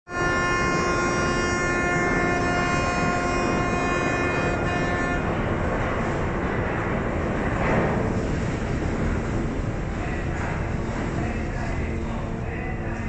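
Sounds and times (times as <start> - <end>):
ship horn blast: 0.1 - 6.2.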